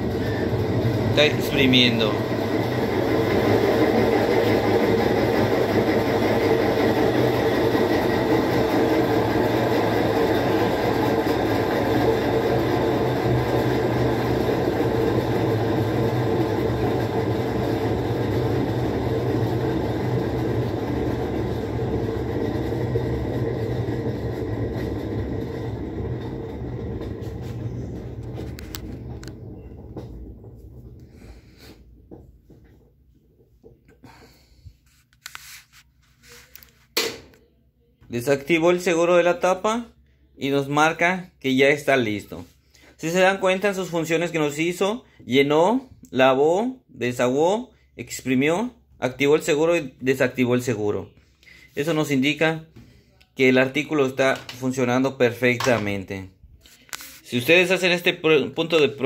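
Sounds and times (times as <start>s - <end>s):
washing machine spinning: 0.0s - 35.0s, 38.1s - 59.0s.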